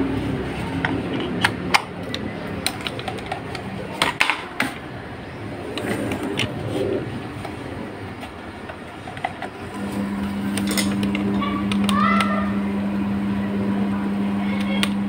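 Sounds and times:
fan motor running: 0.0 - 15.0
plug clicks and handling: 0.8 - 4.4, 10.5 - 12.3.

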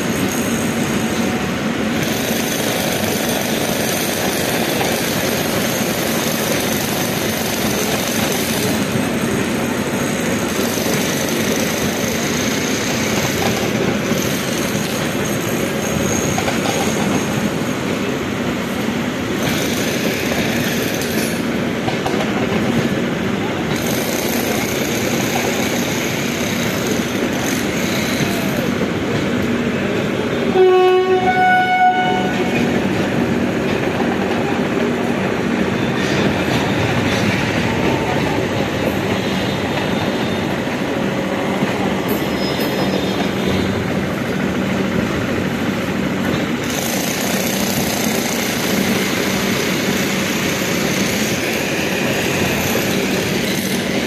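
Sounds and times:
train wheels rumbling and clattering: 0.0 - 54.0
train horn: 30.5 - 32.7.

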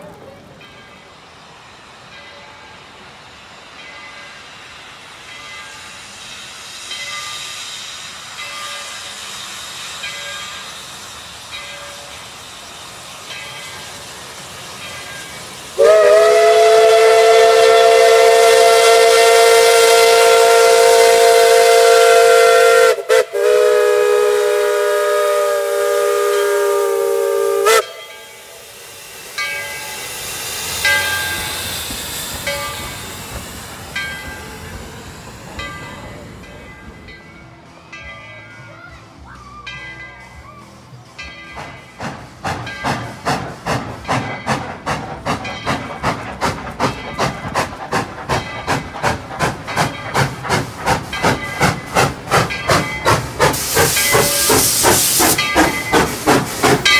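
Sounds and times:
train rolling past: 0.0 - 56.9
steam whistle blasts: 15.8 - 28.2.

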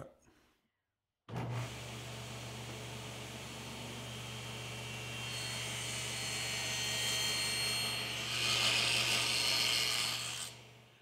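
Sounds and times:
table saw motor hum: 1.3 - 11.0
saw blade cutting wood: 4.0 - 10.8.

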